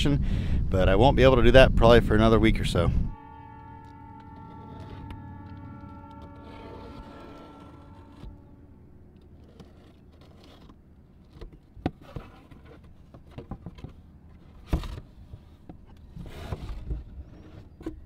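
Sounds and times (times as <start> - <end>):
film roll scraping out of box: 9.1 - 15.0
cardboard flaps scraping and rustling: 9.4 - 18.0.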